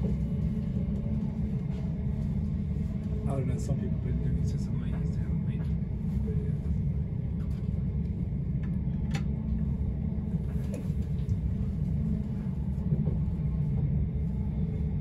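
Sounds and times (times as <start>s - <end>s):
train carriage rumble: 0.0s - 15.0s.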